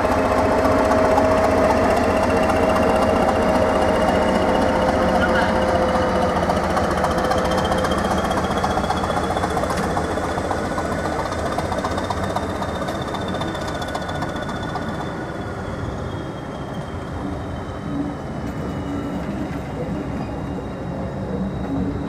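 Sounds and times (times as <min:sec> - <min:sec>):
diesel train engine pulling away: 0:00.0 - 0:22.0.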